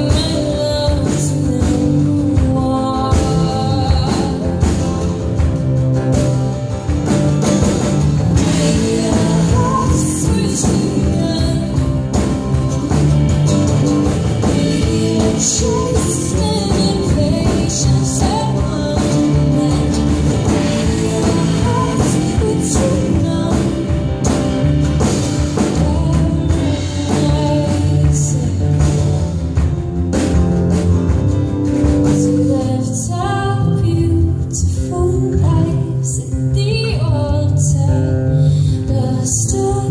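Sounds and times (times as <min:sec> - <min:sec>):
woman singing: 0:00.0 - 0:13.4, 0:14.0 - 0:29.6, 0:31.8 - 0:39.9
acoustic guitars playing: 0:00.0 - 0:39.8.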